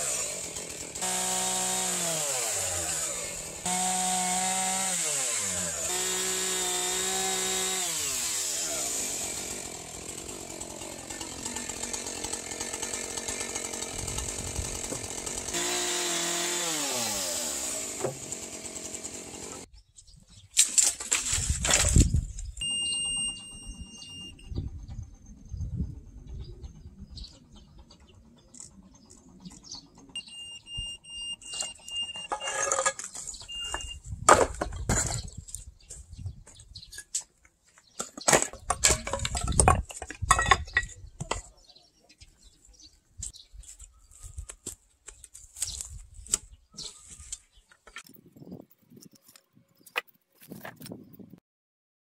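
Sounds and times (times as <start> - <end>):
high-pitched beep tone: 22.6 - 24.6, 30.2 - 32.6, 33.4 - 34.0
debris clattering and crashing: 38.0 - 41.4.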